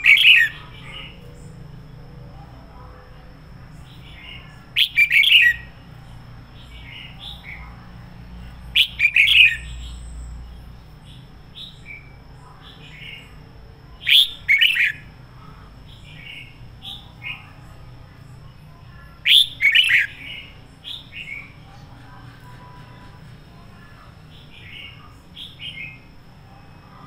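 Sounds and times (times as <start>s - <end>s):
bird singing loud phrases: 0.0s - 2.0s, 3.6s - 15.2s, 15.8s - 17.6s, 18.5s - 22.4s, 24.1s - 26.2s
soft bird chirps: 3.7s - 5.9s, 8.4s - 13.4s, 18.5s - 23.2s.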